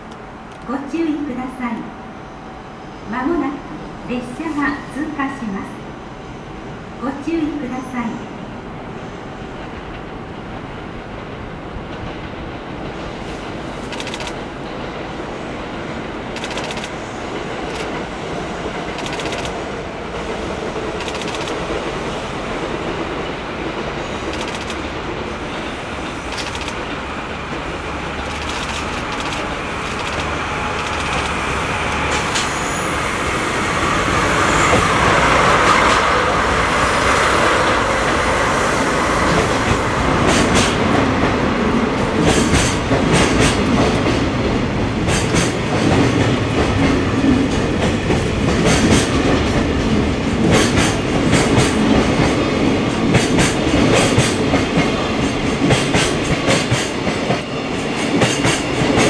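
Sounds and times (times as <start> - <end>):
diesel locomotive engines running: 16.1 - 59.0.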